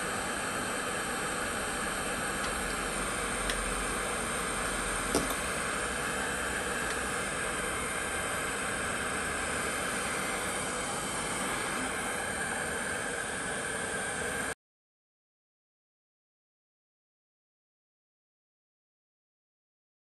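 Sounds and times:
fan blowing hiss: 0:00.0 - 0:14.6.

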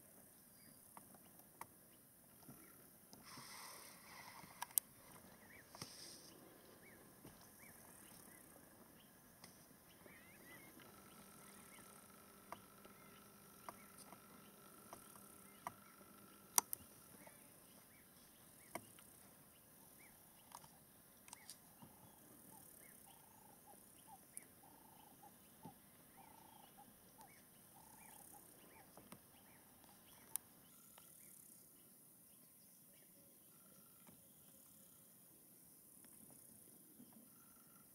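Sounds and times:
faint steady hum: 0:00.0 - 0:37.9
high insect hiss: 0:02.8 - 0:19.2.

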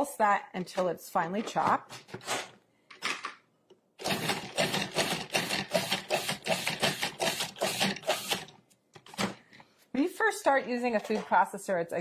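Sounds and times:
food processor chopping and whirring: 0:04.0 - 0:08.5.

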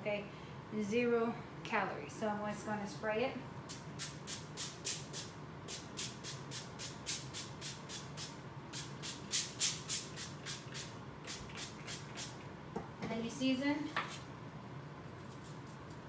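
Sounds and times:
pump sprayer spritzing: 0:04.0 - 0:12.4.

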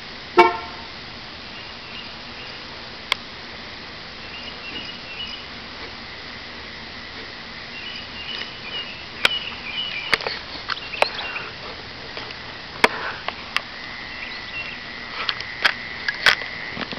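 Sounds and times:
night insects trilling: 0:03.5 - 0:16.9.

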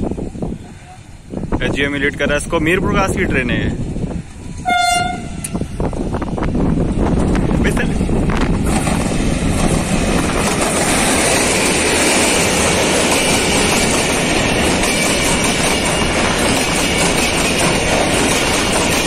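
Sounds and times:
train wheels clattering over rails: 0:06.3 - 0:19.0.

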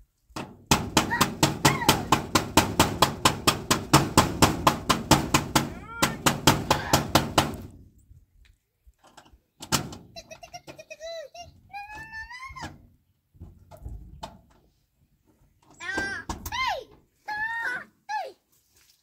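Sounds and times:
rapid even knocking: 0:00.4 - 0:07.7.

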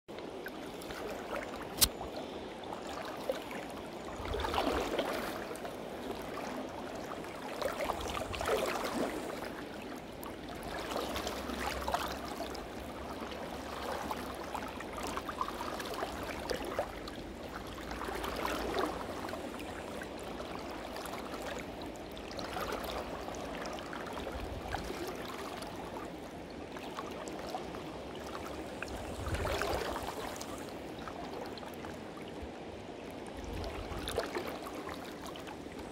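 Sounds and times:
river running over stones: 0:00.2 - 0:03.1.

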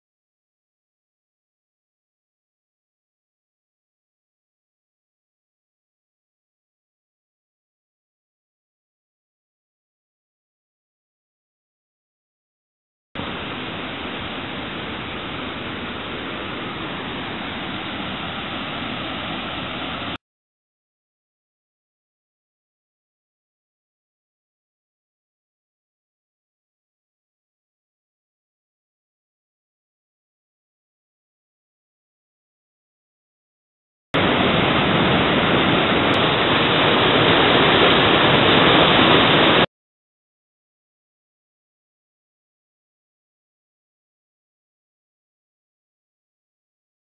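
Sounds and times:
flowing water rushing: 0:13.2 - 0:20.2, 0:34.2 - 0:39.7.

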